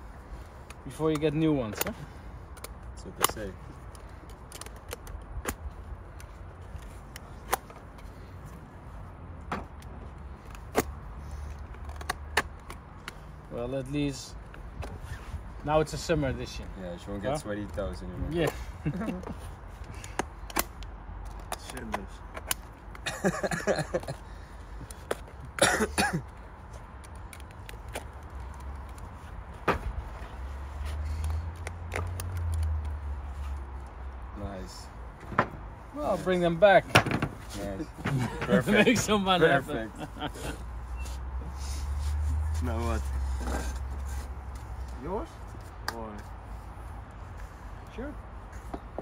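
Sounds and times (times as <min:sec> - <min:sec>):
person coughing: 0:25.6 - 0:26.2
small clicks and creaks: 0:30.1 - 0:34.0.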